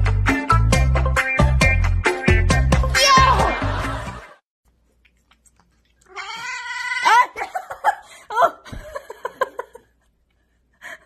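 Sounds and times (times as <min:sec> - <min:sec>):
cat yowling: 0:06.1 - 0:07.4.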